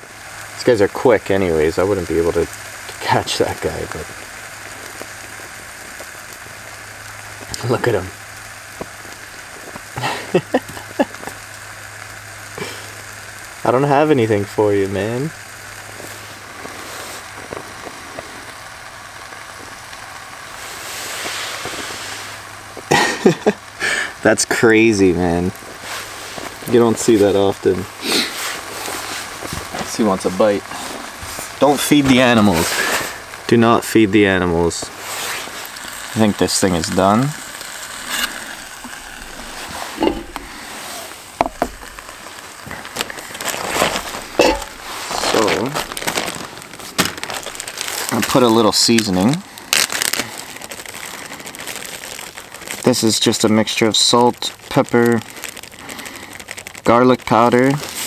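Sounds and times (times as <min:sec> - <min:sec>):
stove burner hiss: 0:00.0 - 0:51.7, 0:52.3 - 0:58.0
faint ticks and crackles: 0:00.0 - 0:58.0
patty sizzling: 0:00.0 - 0:58.0
metal cookware clinking: 0:44.4 - 0:44.8.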